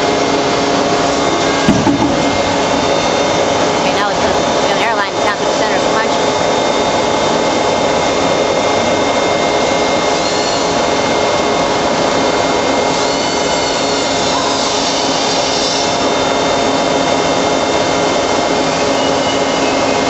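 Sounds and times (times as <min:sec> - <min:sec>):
faint high whines: 0:02.4 - 0:16.7
machinery hiss and drone: 0:02.4 - 0:19.6.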